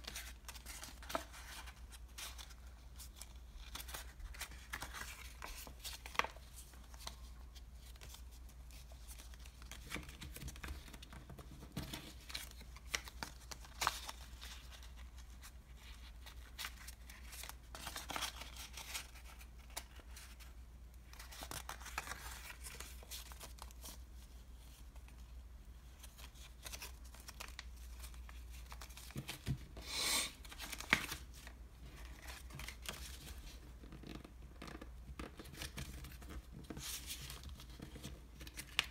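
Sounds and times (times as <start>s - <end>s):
paperboard being folded: 0.0s - 25.2s.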